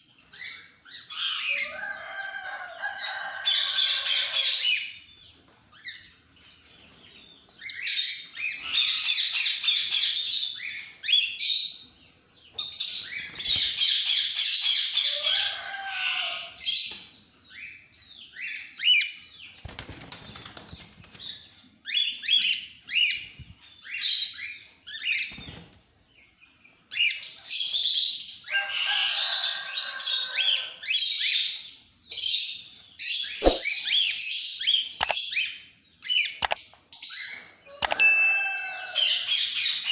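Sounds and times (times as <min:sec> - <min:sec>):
birds chirping and calling: 0:00.0 - 0:39.9
wings flapping: 0:19.6 - 0:21.2, 0:33.4 - 0:33.7.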